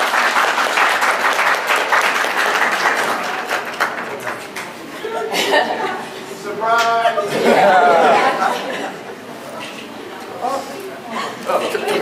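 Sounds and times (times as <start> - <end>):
crowd applauding: 0.0 - 4.7.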